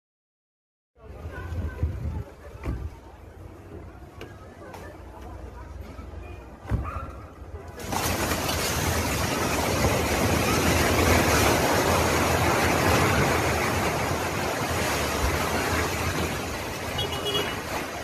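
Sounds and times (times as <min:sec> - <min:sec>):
rumble of falling concrete: 0:07.8 - 0:16.8.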